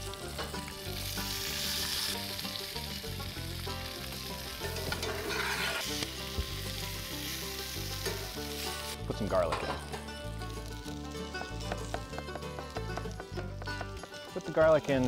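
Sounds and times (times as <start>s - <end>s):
food sizzling in a skillet: 0.0s - 15.0s
metal spatula stirring: 4.7s - 6.0s.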